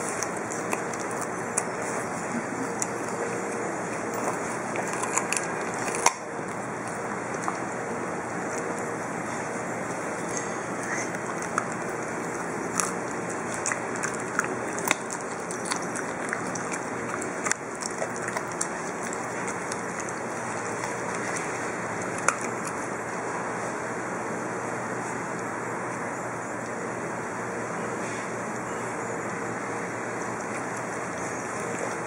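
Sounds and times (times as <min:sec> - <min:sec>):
puppy crunching raw carrot: 0:00.0 - 0:26.0, 0:29.2 - 0:32.0.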